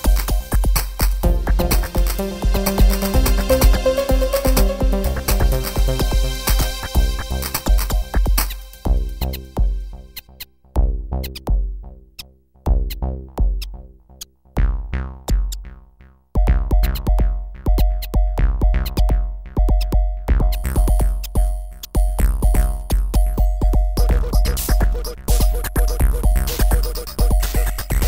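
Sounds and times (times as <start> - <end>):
electronic music with drum beat: 0.0 - 15.8, 16.4 - 28.0
held synth tone: 1.2 - 7.5
deep bass hits: 1.2 - 9.8, 16.4 - 26.5.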